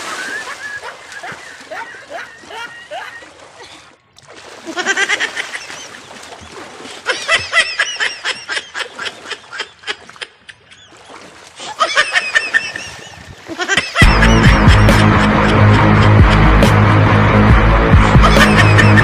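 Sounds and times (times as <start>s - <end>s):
high-pitched cackling laughter: 0.3s - 3.3s, 4.7s - 5.9s, 7.1s - 10.9s, 11.7s - 16.7s, 18.1s - 19.0s.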